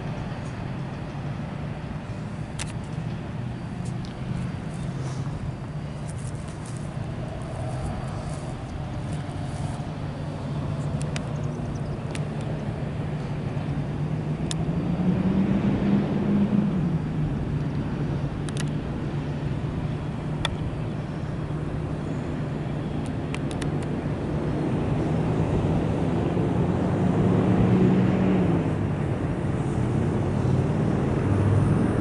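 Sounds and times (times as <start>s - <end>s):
distant vehicle rumble: 0.0s - 32.0s.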